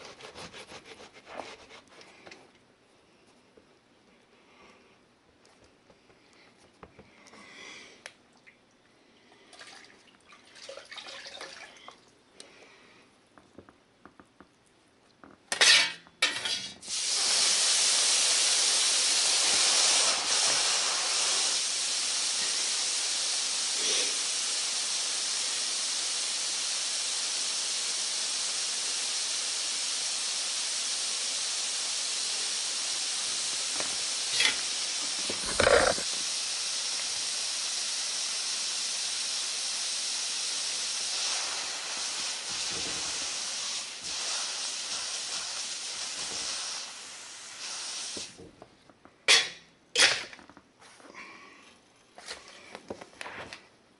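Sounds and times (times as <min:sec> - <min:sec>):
steam hissing: 0:16.8 - 0:48.4.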